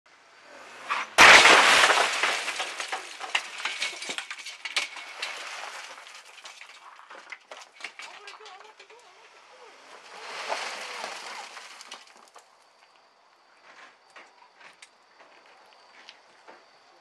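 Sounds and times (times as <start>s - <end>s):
glass shattering crash: 0.9s - 8.8s, 10.0s - 12.3s.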